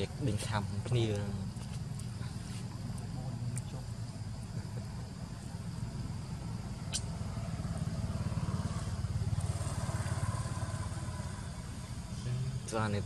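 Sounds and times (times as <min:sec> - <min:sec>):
motorbike engine passing by: 0:05.7 - 0:12.7.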